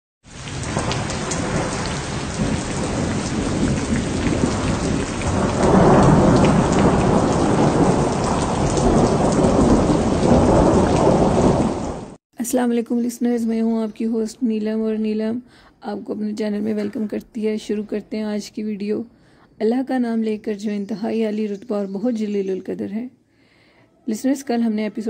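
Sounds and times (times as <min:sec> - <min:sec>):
heavy rain: 0:00.2 - 0:12.2
thunder rumbling: 0:00.3 - 0:12.2.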